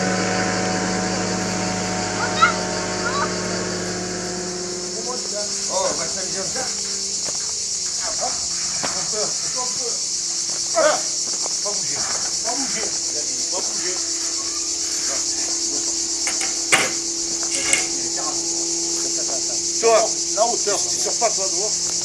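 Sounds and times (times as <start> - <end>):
insects shrilling: 0.0 - 22.0
sharp knocks: 16.2 - 18.0.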